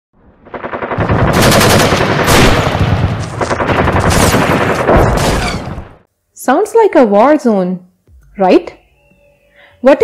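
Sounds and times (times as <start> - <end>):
rapid machine-gun fire: 0.4 - 6.0.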